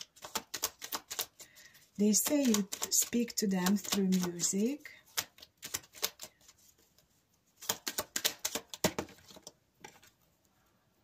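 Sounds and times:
cards being shuffled: 0.0s - 10.2s.

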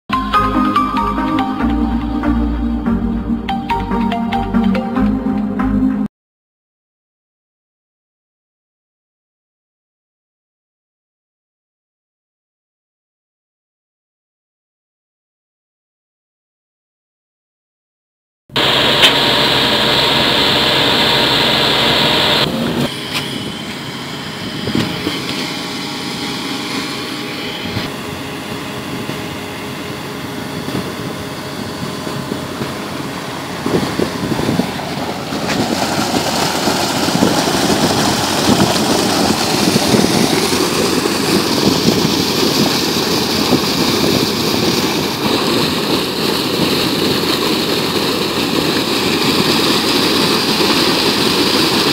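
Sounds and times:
air compressor running: 18.5s - 51.9s
compressed air and water rushing: 18.6s - 28.2s, 30.5s - 51.9s.

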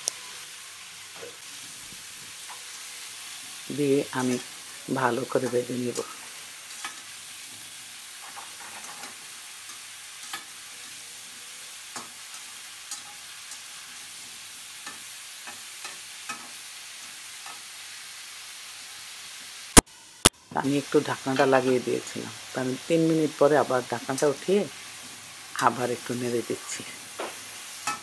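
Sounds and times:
vegetables sizzling in oil: 0.0s - 28.0s
metal spatula scraping pan: 8.2s - 10.6s.

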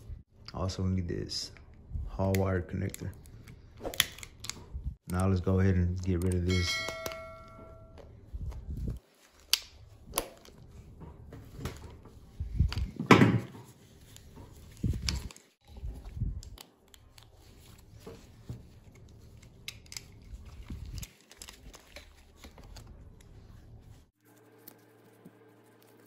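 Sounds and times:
gloved hands rustling: 13.6s - 26.0s.

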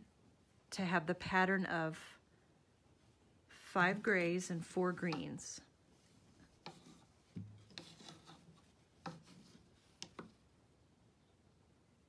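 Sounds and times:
loom shuttle rubbing and tapping: 4.2s - 5.4s, 6.5s - 10.4s.

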